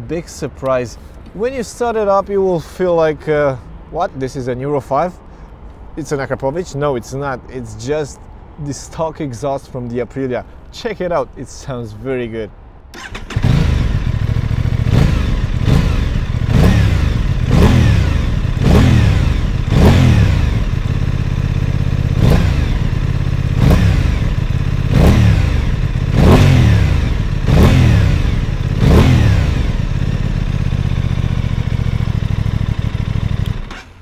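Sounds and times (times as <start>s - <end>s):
motorcycle engine revving: 13.0s - 34.0s.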